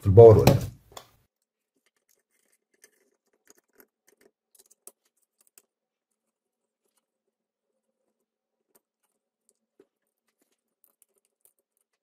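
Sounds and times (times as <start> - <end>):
faint clicks and taps: 0.4 - 12.0.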